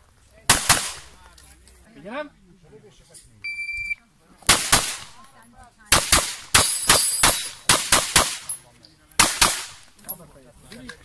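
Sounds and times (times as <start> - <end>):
gunshots with short echo: 9.2 - 9.8.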